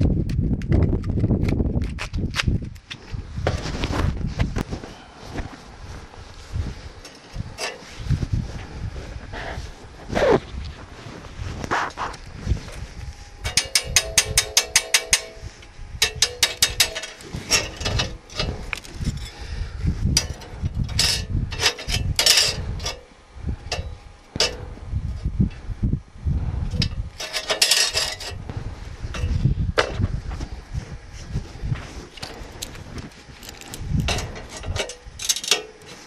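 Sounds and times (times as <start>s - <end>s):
short scraping sounds: 3.0s - 13.6s
hammer tapping metal: 13.4s - 17.2s.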